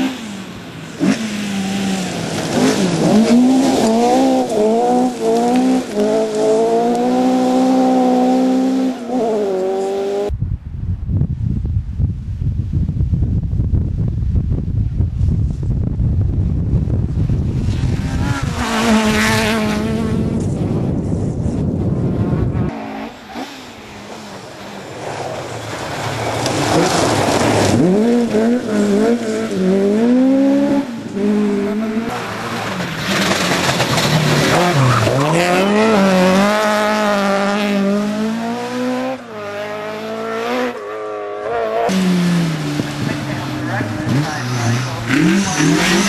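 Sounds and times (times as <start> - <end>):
rally car engine revving: 0.0 - 10.3, 17.3 - 46.0
wind buffeting: 10.2 - 22.8.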